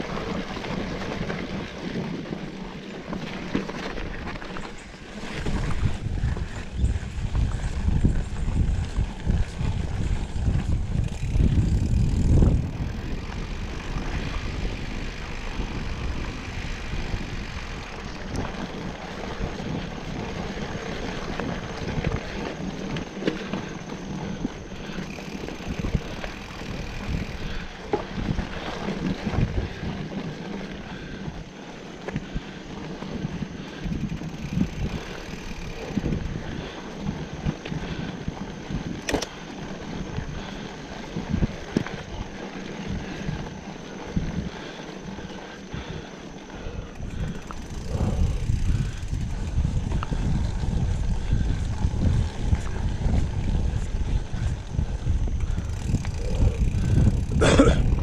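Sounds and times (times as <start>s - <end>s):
bike tyres rumbling on dirt: 0.0s - 58.0s
wind on microphone: 4.0s - 31.4s, 32.2s - 58.0s
bike knocks and rattles: 38.8s - 39.4s.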